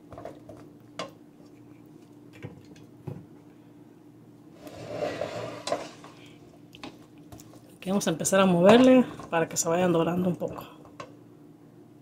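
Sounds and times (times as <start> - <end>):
spatula scraping sizzling potatoes: 4.5 - 6.4.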